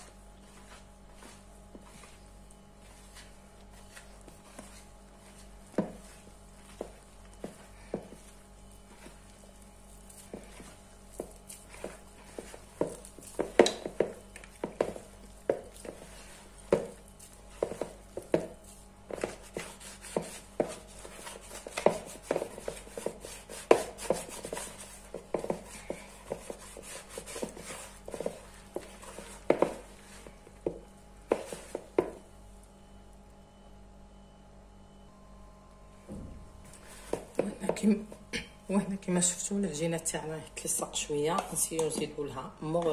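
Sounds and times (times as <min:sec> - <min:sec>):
hand kneading dough in bowl: 0:00.0 - 0:32.9.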